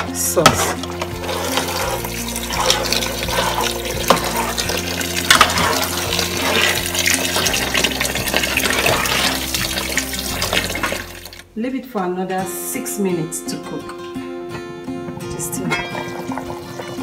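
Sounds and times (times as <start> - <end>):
water pouring into a pot: 1.0 - 11.4, 15.9 - 17.0.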